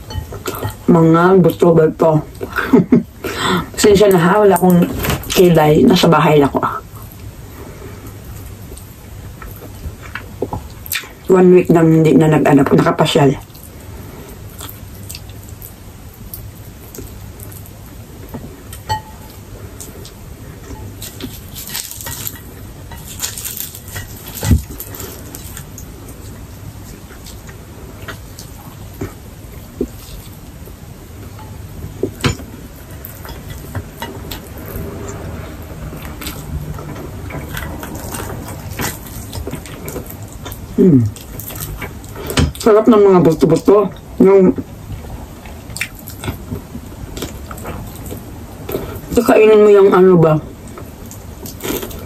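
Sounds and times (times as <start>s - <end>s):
chewing crispy food: 12.7s - 44.2s, 44.8s - 49.2s, 50.6s - 52.0s.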